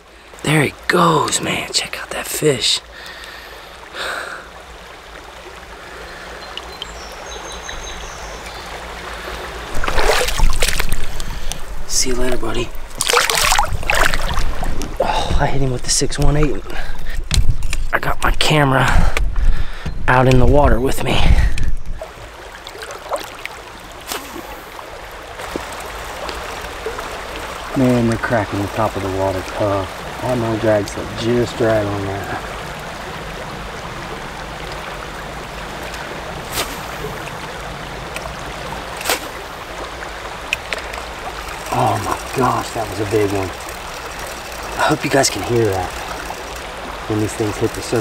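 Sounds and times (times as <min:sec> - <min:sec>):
creek water rushing over riffles: 0:00.0 - 0:48.0
faint ticks: 0:02.9 - 0:03.5, 0:40.4 - 0:48.0.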